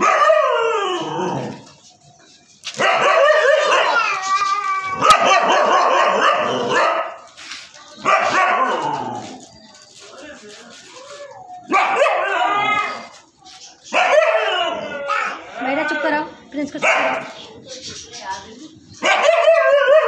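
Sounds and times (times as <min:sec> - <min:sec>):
dog barking and howling: 0:00.0 - 0:01.8, 0:02.7 - 0:07.3, 0:08.0 - 0:09.5, 0:11.1 - 0:13.1, 0:13.9 - 0:15.5, 0:19.0 - 0:20.0.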